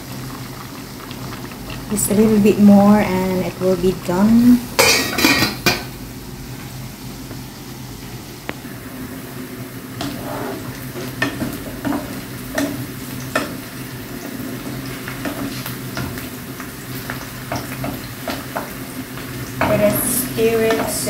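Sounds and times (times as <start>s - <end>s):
onions sizzling in hot oil: 0.0s - 21.0s
spatula scraping and tapping pan: 10.0s - 13.6s, 14.2s - 16.2s.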